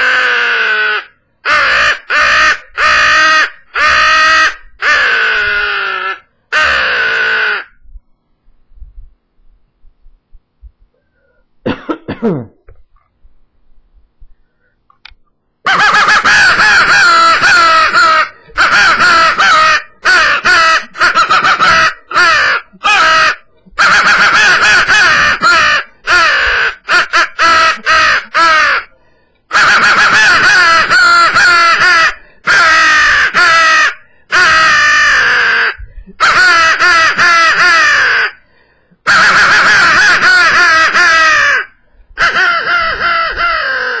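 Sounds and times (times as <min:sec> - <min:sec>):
crow call raspy caws: 0:00.0 - 0:07.8, 0:15.7 - 0:28.9, 0:29.5 - 0:38.4, 0:39.1 - 0:44.0.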